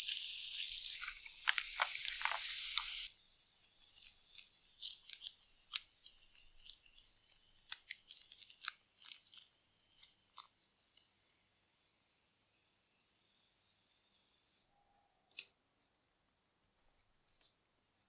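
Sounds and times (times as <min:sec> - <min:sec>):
plastic wrap crinkling: 0:00.5 - 0:03.1, 0:03.7 - 0:10.5.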